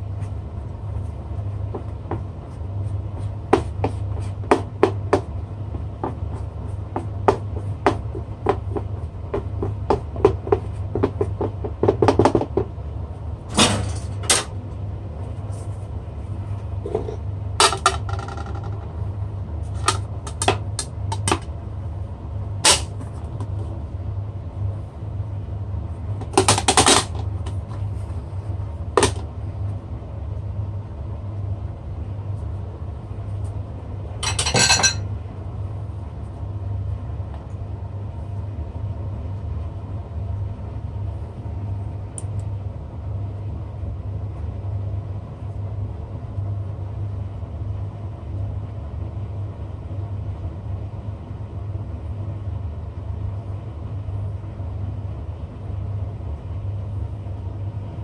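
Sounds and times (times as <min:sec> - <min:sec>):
steady low hum: 0:00.0 - 0:58.0
ceramic clinks and knocks: 0:34.2 - 0:35.0.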